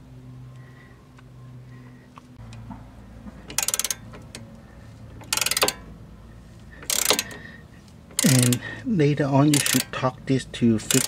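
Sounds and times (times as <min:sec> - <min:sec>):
ratchet wrench clicking: 0:03.5 - 0:05.9, 0:06.7 - 0:08.8, 0:09.4 - 0:10.0, 0:10.8 - 0:11.0.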